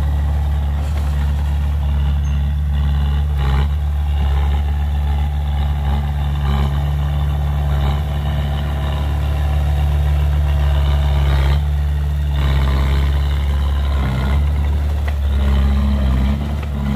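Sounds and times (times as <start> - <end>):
bulldozer diesel engine running: 0.0 - 16.9.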